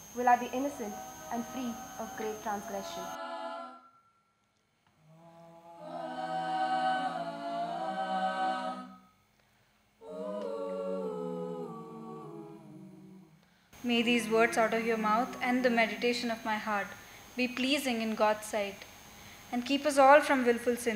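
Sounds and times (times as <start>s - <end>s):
choir singing a cappella: 0.1s - 4.0s, 5.0s - 9.1s, 10.0s - 13.4s.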